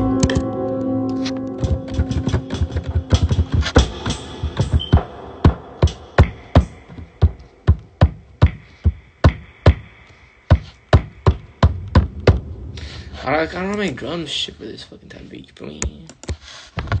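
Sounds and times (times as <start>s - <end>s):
punchy electronic drum hits: 1.6s - 9.9s, 10.5s - 12.7s.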